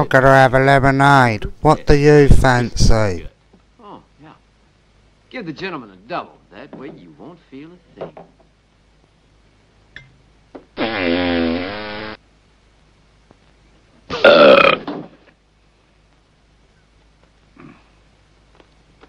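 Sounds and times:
comic burp or fart effect: 0:10.8 - 0:12.2, 0:14.1 - 0:15.1.

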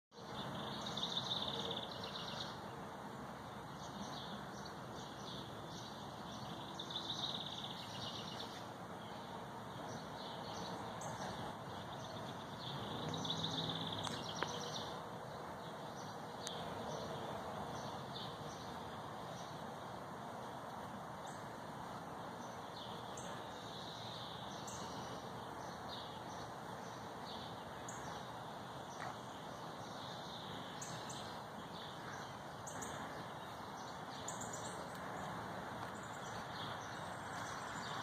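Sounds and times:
songbird singing: 0:00.1 - 0:38.0
outdoor background hum: 0:00.2 - 0:38.0.

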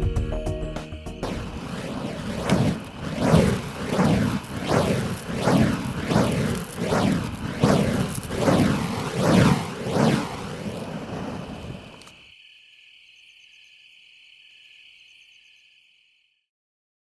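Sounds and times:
fire poi whooshing: 0:01.2 - 0:12.2
insects chirring: 0:01.2 - 0:16.4.

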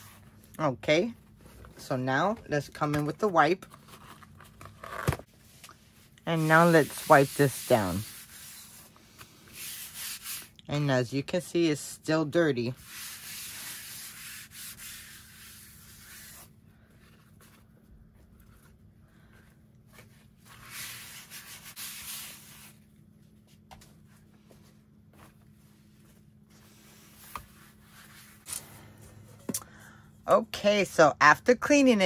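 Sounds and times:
cleaning wipe rubbing on mirror: 0:06.4 - 0:08.9, 0:09.5 - 0:10.5, 0:12.8 - 0:16.5.

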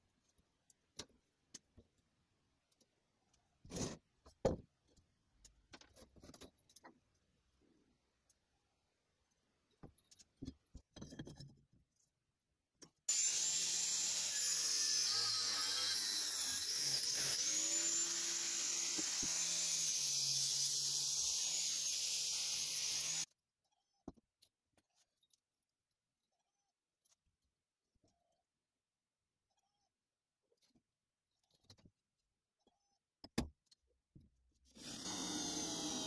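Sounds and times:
angle grinder cutting steel: 0:13.1 - 0:23.3.

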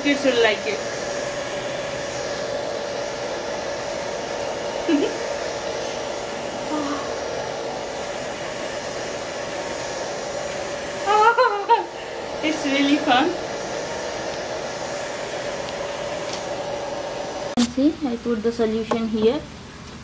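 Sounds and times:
small fan motor whirring: 0:00.0 - 0:19.4
woman laughing and exclaiming: 0:11.0 - 0:12.0.

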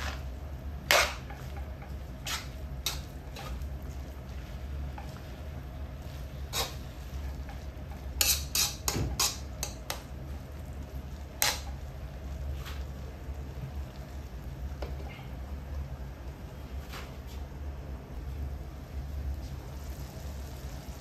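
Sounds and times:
metal spatula scraping a wok: 0:00.0 - 0:10.1, 0:11.1 - 0:11.8
food sizzling: 0:00.0 - 0:21.0.

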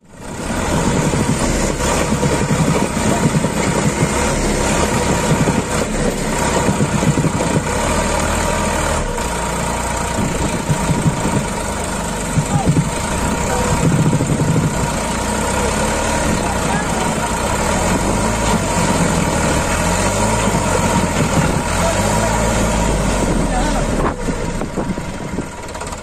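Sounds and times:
tractor diesel engine running: 0:00.0 - 0:26.0.

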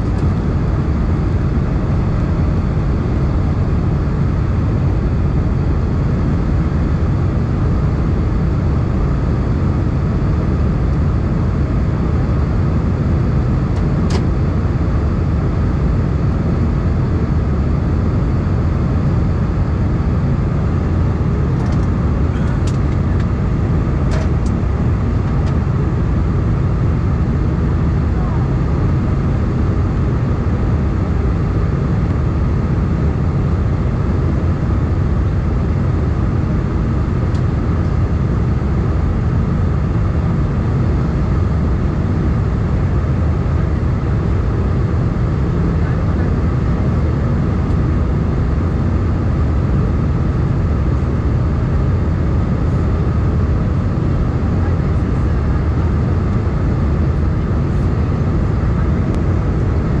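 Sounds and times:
jet engine cabin roar: 0:00.0 - 1:00.0.

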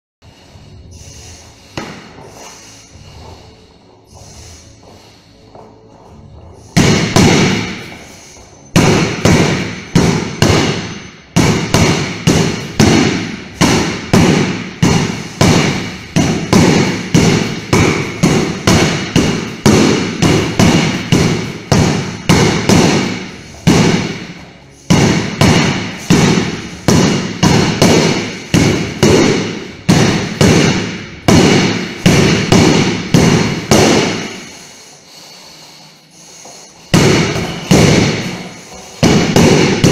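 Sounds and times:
sword striking punching bag: 0:06.8 - 0:08.0, 0:08.7 - 0:34.5, 0:36.9 - 0:39.9.

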